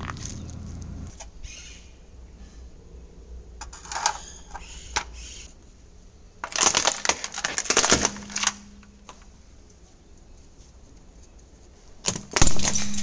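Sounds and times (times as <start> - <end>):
plastic crackling under a car tyre: 0.0 - 1.2, 6.4 - 13.0.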